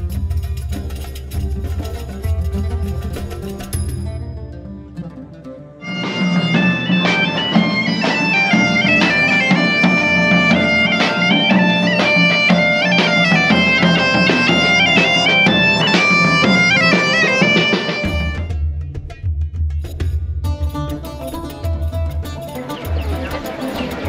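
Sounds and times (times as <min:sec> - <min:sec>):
drums beating time: 0:00.0 - 0:04.4, 0:05.8 - 0:24.0
bagpipe playing lively tune: 0:05.8 - 0:18.5, 0:22.5 - 0:24.0.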